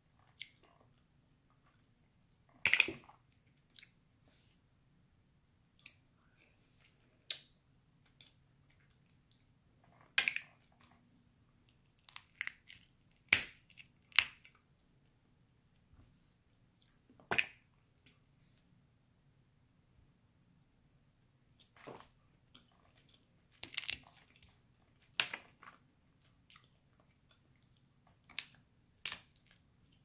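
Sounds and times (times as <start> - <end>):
crab shells cracking: 12.0 - 14.5, 23.5 - 24.3.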